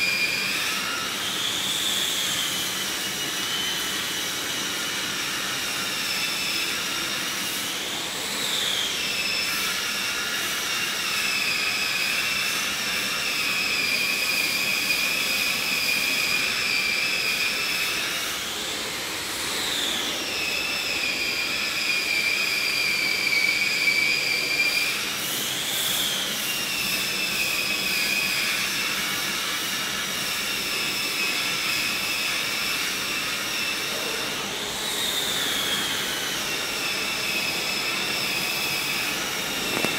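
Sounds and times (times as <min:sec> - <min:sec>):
high whine: 0:12.8 - 0:39.9.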